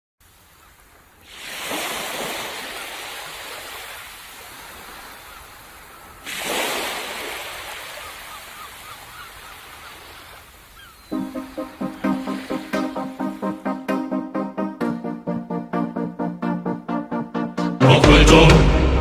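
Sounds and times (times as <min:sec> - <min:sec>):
sea waves breaking on beach: 0:00.2 - 0:13.9.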